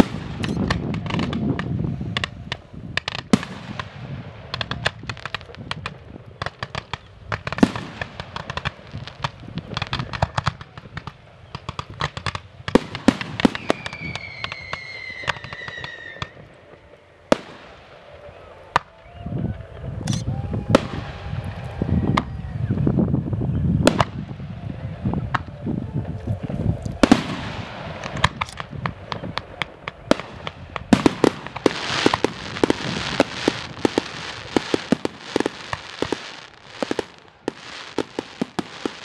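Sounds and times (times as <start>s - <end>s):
loud firework bangs: 0.0s - 19.0s, 19.8s - 39.0s
fireworks cracking and popping: 0.0s - 39.0s
falling firework whistle: 11.4s - 39.0s.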